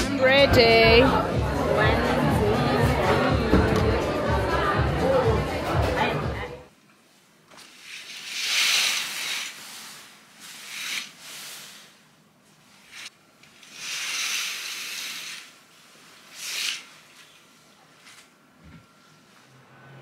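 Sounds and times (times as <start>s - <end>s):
curtains swishing along rail: 7.6s - 17.3s.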